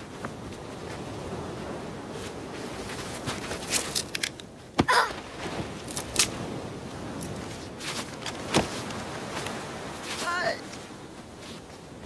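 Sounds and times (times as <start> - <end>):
wind: 0.0 - 12.0
surf: 4.8 - 12.0.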